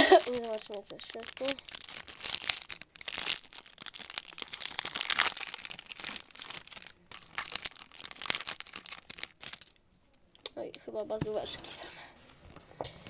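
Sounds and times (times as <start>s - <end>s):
foil wrapper crinkling and tearing: 0.0s - 9.8s.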